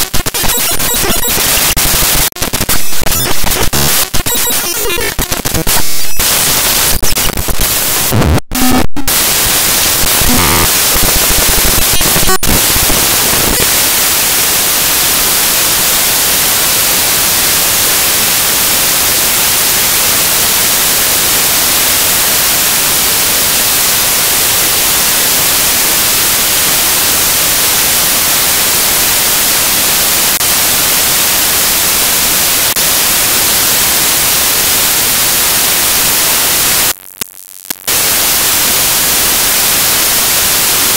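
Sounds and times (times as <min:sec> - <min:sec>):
crackles: 0:00.0 - 0:15.4, 0:32.6 - 0:40.9
loud static hiss: 0:00.0 - 0:40.9.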